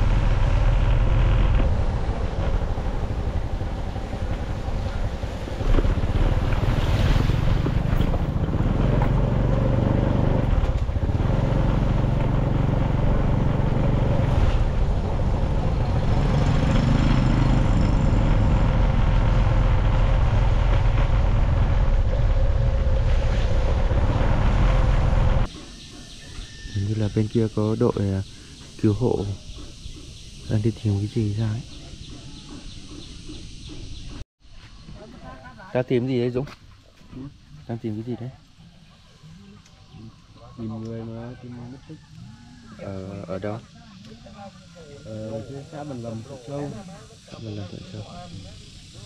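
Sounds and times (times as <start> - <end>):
vehicle engine running: 0.0 - 25.6, 42.6 - 49.0
wind rumble on microphone: 17.6 - 25.5.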